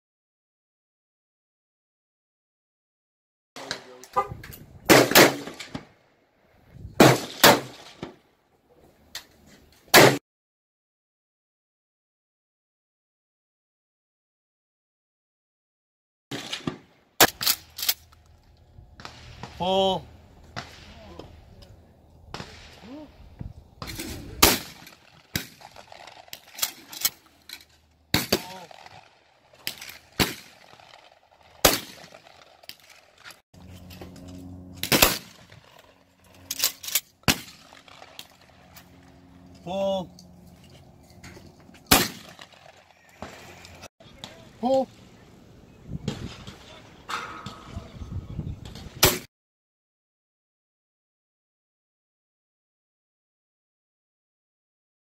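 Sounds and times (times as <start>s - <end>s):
gunshots: 3.6s - 5.9s, 7.0s - 8.2s, 9.9s - 10.2s, 16.3s - 17.9s, 19.0s - 21.3s, 22.3s - 23.1s, 23.8s - 27.2s, 28.1s - 33.3s, 34.8s - 36.0s, 36.6s - 38.8s, 41.9s - 43.6s, 49.0s - 49.3s
shotgun shots: 3.6s - 5.9s, 7.0s - 8.2s, 9.9s - 10.2s, 16.3s - 18.0s, 19.0s - 21.2s, 22.3s - 23.1s, 23.8s - 27.2s, 28.1s - 33.1s, 34.8s - 36.0s, 36.6s - 38.7s, 41.9s - 43.6s, 49.0s - 49.3s.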